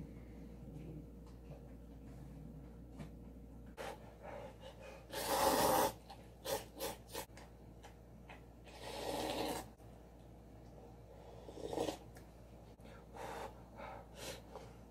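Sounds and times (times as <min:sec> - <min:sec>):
person slurping noodles: 0:08.7 - 0:09.8, 0:11.4 - 0:12.1.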